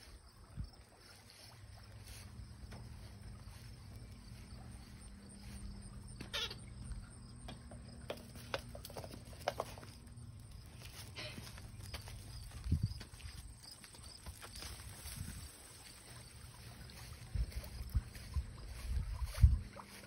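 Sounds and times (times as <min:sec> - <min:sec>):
faint steady hum: 0:00.0 - 0:20.0
paws clicking on concrete: 0:07.5 - 0:15.8.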